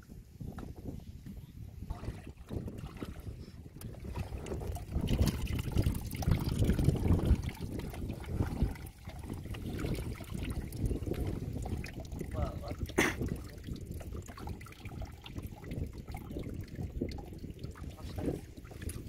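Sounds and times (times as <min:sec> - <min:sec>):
water draining through trap: 0:01.9 - 0:19.0.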